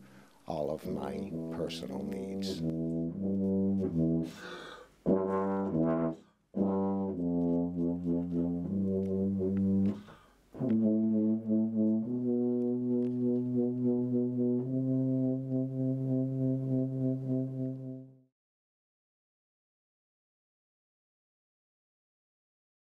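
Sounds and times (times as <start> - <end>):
solo tuba playing: 0.8 - 18.3.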